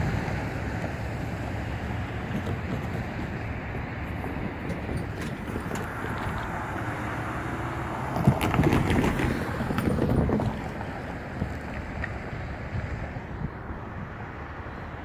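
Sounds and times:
car crossing railroad tracks: 0:00.0 - 0:15.0
wind on microphone: 0:08.0 - 0:15.0.

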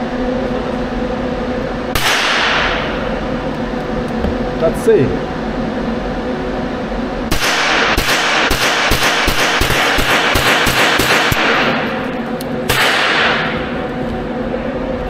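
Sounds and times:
gunshots ringing indoors: 0:01.9 - 0:03.0, 0:07.3 - 0:12.0, 0:12.7 - 0:13.8.

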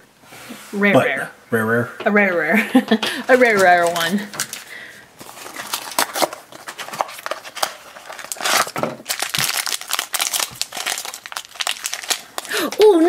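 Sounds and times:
foil bag crinkling and tearing: 0:03.3 - 0:13.0.

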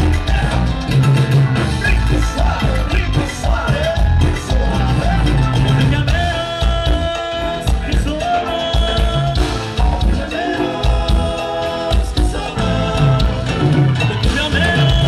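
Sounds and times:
bass: 0:00.0 - 0:15.0
congas: 0:00.0 - 0:15.0
drum kit beat: 0:00.0 - 0:15.0
electric guitar: 0:00.0 - 0:15.0.

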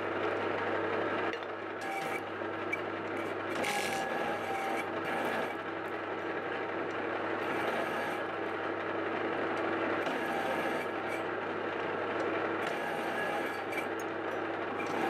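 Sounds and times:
lathe motor hum: 0:00.0 - 0:15.0
cutting tool scraping metal: 0:03.2 - 0:04.9.

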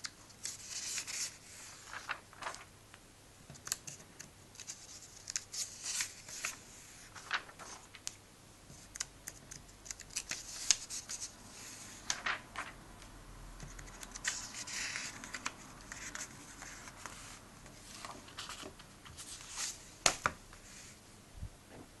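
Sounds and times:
paper pages turning: 0:00.4 - 0:02.7, 0:03.6 - 0:12.8, 0:13.6 - 0:20.6
paper rustling: 0:00.4 - 0:02.7, 0:03.6 - 0:12.8, 0:13.6 - 0:21.0.

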